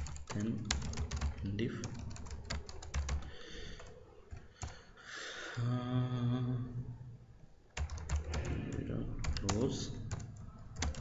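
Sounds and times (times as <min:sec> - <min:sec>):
low vocal hum: 0:05.6 - 0:07.1.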